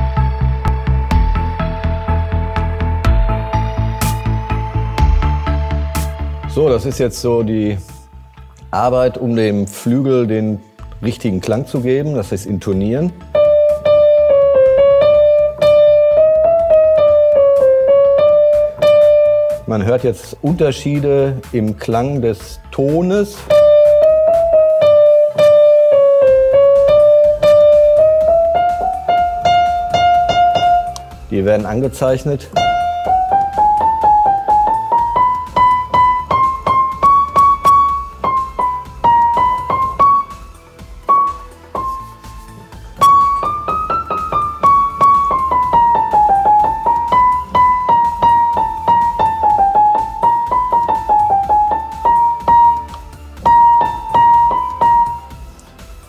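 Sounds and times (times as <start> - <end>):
piano single notes: 13.2 - 19.8, 23.5 - 55.9.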